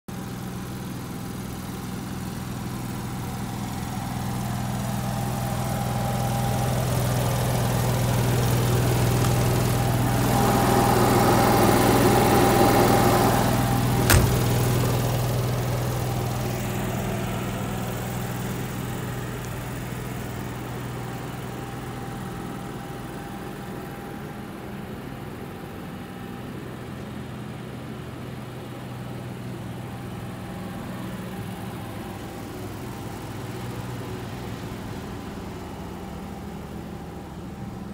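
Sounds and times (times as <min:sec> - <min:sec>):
engine idling: 0:00.1 - 0:37.9
sharp click: 0:14.1 - 0:14.6.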